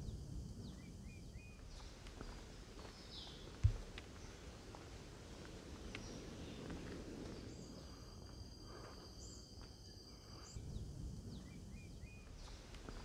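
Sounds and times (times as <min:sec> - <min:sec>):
low background rumble: 0:00.0 - 0:13.0
insects buzzing high-pitched: 0:06.0 - 0:13.0.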